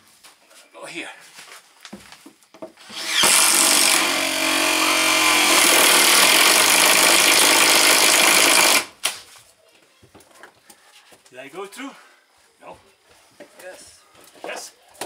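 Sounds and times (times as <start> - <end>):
cordless drill boring into wood: 2.8 - 8.9.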